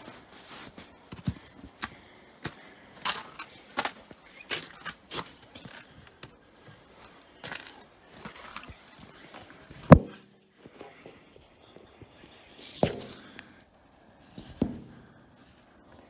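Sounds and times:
footsteps walking: 0.0s - 10.0s.

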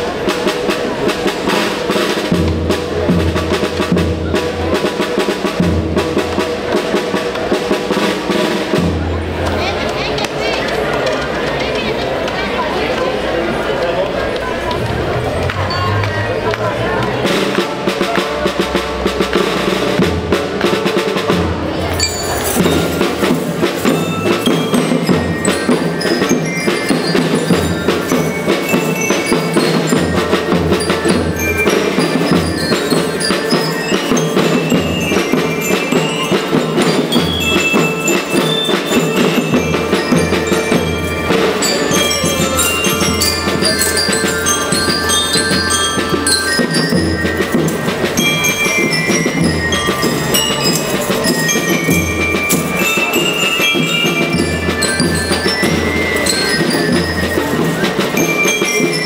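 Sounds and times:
bass and snare drums: 0.0s - 10.0s, 17.0s - 59.0s
marching band playing: 0.0s - 59.0s
bell lyre melody: 21.8s - 59.0s.

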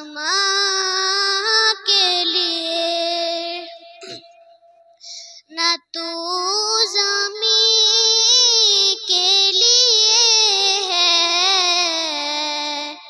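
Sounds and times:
singer breathing: 4.9s - 5.5s.

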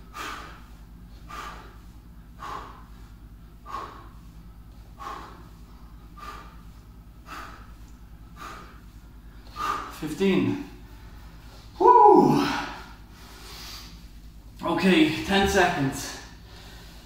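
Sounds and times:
man exhaling forcefully: 11.8s - 14.0s.

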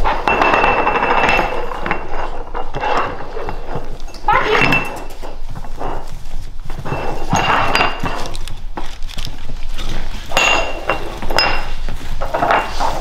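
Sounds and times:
glass jars clinking on wooden floor: 0.0s - 8.8s, 10.2s - 13.0s
puppies snuffling and eating: 0.0s - 13.0s.

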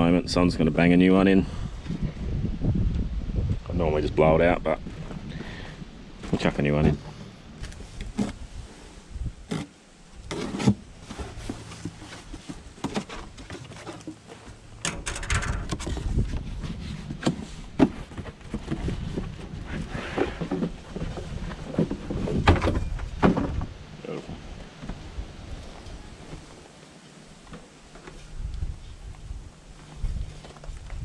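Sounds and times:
rustling: 4.8s - 31.0s
knocks and clunks of filter housing: 20.2s - 23.7s.

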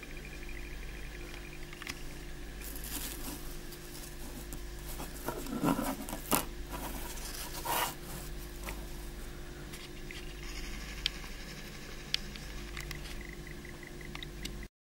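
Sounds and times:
faint steady hum: 0.0s - 14.7s
fingers rustling a thin metal leaf: 2.6s - 9.4s.

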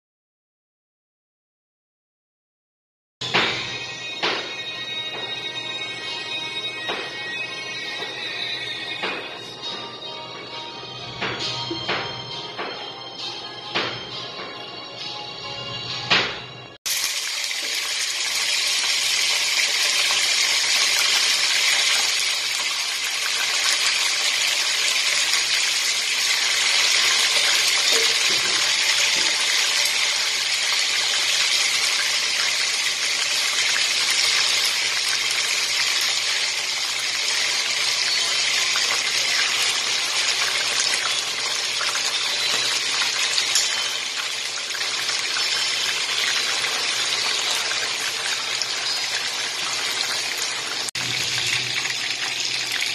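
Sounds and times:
chicken frying in hot oil: 16.9s - 52.9s.

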